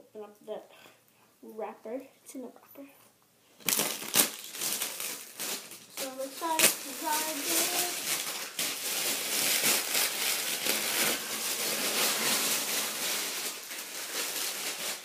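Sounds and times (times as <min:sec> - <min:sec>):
plastic wrapping crinkling: 0:03.6 - 0:15.0.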